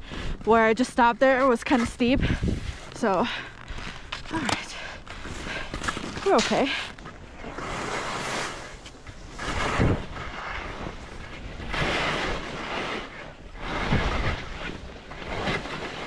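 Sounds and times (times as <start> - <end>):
wind on microphone: 0.0 - 16.0
skis swishing on snow: 0.1 - 16.0.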